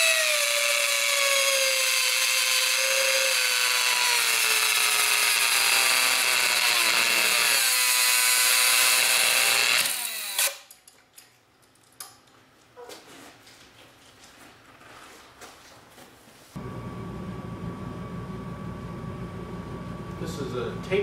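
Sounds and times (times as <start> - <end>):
electric motor whining: 1.4 - 8.0.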